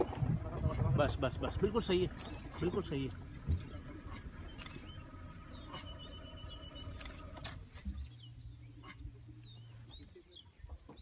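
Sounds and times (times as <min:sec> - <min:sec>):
birds chirping: 0:00.0 - 0:11.0
low steady hum: 0:00.0 - 0:11.0.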